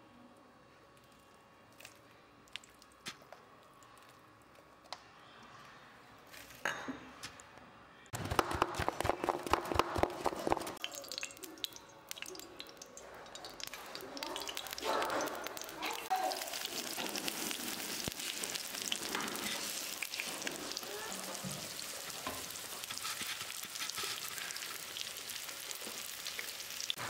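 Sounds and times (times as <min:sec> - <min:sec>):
wet squishing and crackling: 0:01.8 - 0:04.5, 0:10.2 - 0:22.1
juice dripping: 0:01.8 - 0:04.6, 0:10.6 - 0:21.7.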